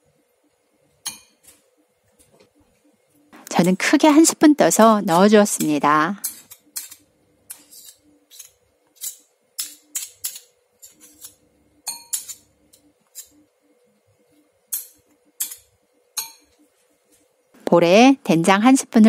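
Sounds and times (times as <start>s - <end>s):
spoons clinking on ceramic bowl: 11.8s - 13.3s.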